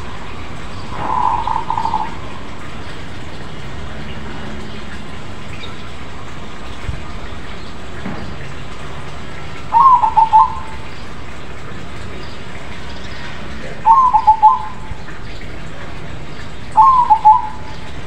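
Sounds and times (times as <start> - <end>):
steady background hiss: 0.0 - 18.0
dove cooing: 0.9 - 2.6, 9.7 - 10.9, 13.8 - 14.9, 16.7 - 17.7.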